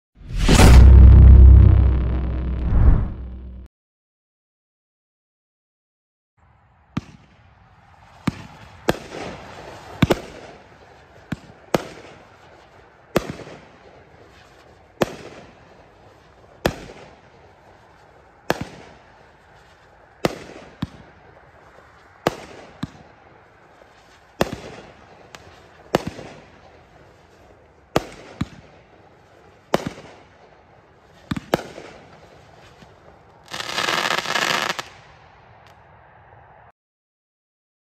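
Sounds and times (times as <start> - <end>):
dense firework crackle: 7.8 - 35.4
firework shots with hissing tails: 33.5 - 35.1.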